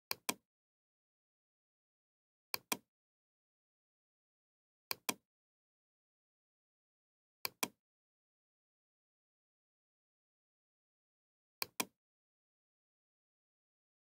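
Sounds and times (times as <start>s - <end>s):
mouse button clicking: 7.5s - 7.8s, 11.6s - 12.0s.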